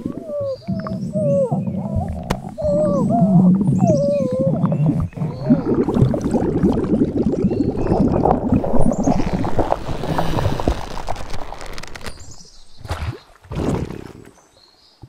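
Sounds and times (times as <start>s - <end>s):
gliding stomach groan: 0.0s - 7.0s
wet stomach gurgling: 0.0s - 14.4s.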